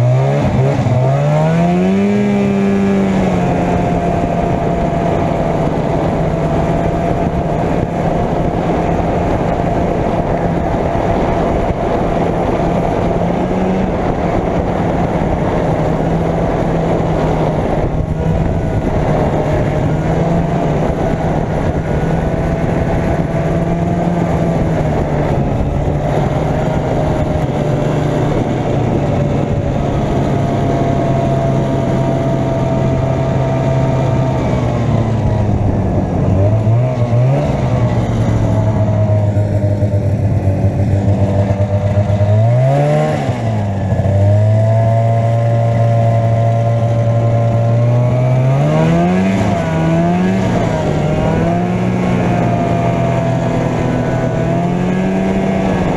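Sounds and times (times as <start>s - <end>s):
snowmobile engine running: 0.0s - 55.9s.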